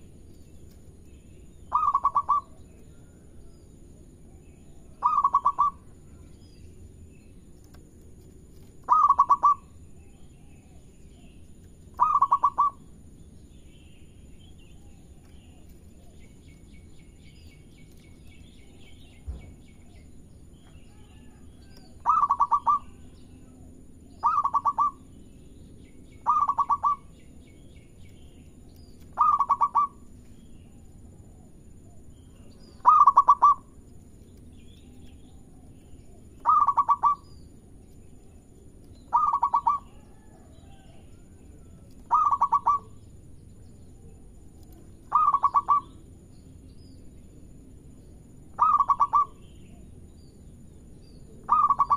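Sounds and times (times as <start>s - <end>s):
faint bird chirps: 0.0s - 7.8s, 8.6s - 51.9s
dove cooing: 1.7s - 3.2s, 4.2s - 6.3s, 8.8s - 13.0s, 20.9s - 25.0s, 26.2s - 27.1s, 29.1s - 30.1s, 31.2s - 33.8s, 35.4s - 37.2s, 39.1s - 43.0s, 44.8s - 46.0s, 48.6s - 49.8s, 51.4s - 51.9s.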